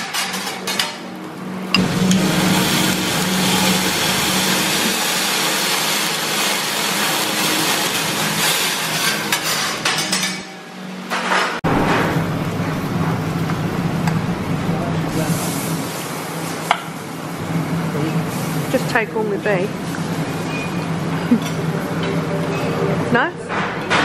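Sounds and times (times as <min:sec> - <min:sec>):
griddle sizzling loudly: 0:00.0 - 0:11.0, 0:11.7 - 0:22.8
steady low hum: 0:01.5 - 0:06.2, 0:11.6 - 0:15.9.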